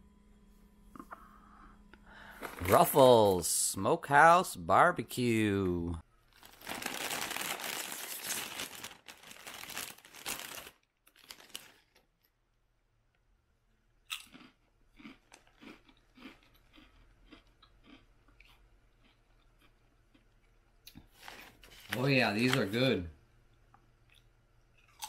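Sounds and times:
chip bag rustling: 2.2 - 3.5, 6.2 - 12.3
potato chip crack: 6.4 - 12.1, 14.1 - 19.8
chewing crunches: 14.1 - 21.0, 24.1 - 25.0.

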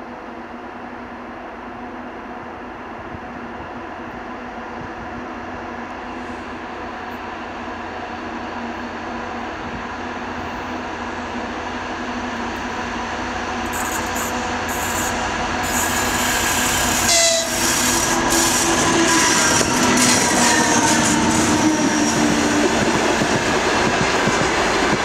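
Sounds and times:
diesel locomotive engine: 0.0 - 25.0
train horn: 14.2 - 22.8.

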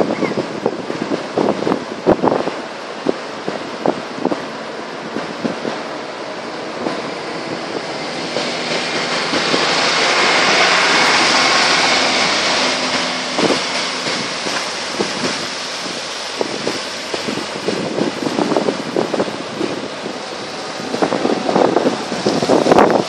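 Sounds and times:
tyres hissing through water: 0.0 - 23.0
truck engine running: 4.2 - 23.0
trailer knocks: 6.7 - 23.0.

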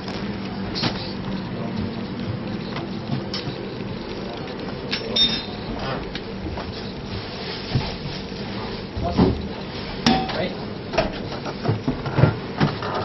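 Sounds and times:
dishes and cutlery clinking: 4.9 - 5.6, 10.0 - 10.4.

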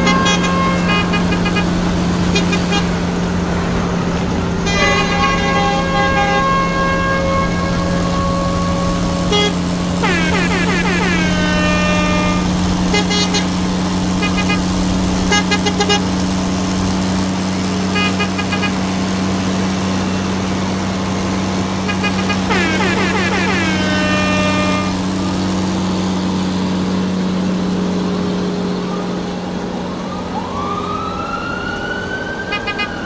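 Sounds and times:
horn-like toots: 0.0 - 3.2, 4.6 - 16.2, 17.7 - 19.0, 21.8 - 25.3
electronic engine drone: 0.0 - 31.3.

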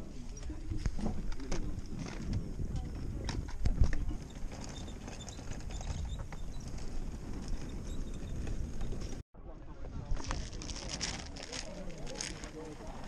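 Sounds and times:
plastic toys clattering in box: 10.2 - 12.8.

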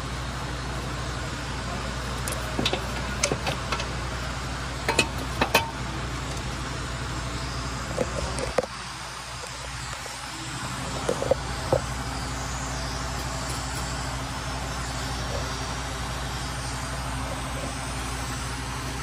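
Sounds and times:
steady low hum: 0.0 - 19.0
metal cover clicks and knocks: 4.9 - 5.8.

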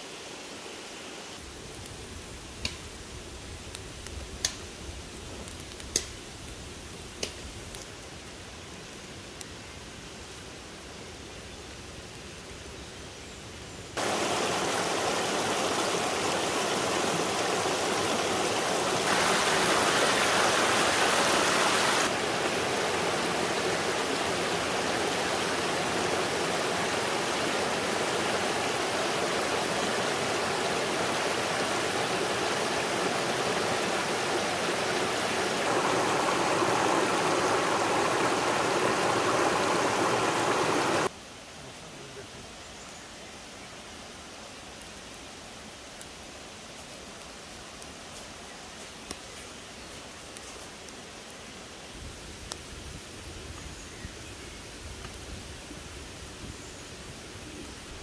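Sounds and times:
stream running over stones: 14.0 - 41.2.

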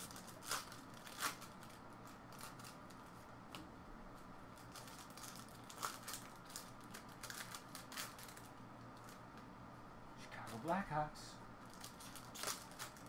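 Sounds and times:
wrapper crinkling: 0.0 - 3.1, 4.6 - 9.2, 11.6 - 13.0.

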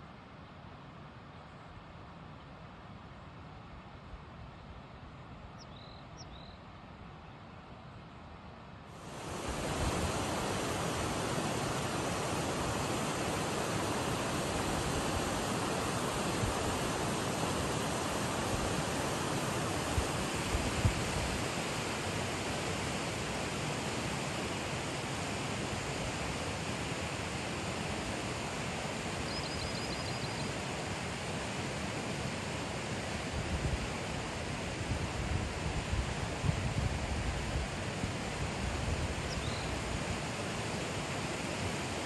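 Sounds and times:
river running over stones: 9.0 - 29.3.

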